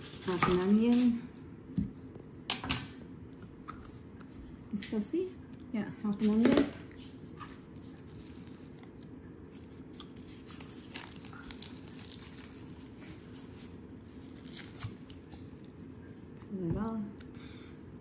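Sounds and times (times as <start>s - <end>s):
onion skin tearing and crinkling: 0.0s - 2.2s, 7.2s - 16.6s
low room hum: 0.0s - 18.0s.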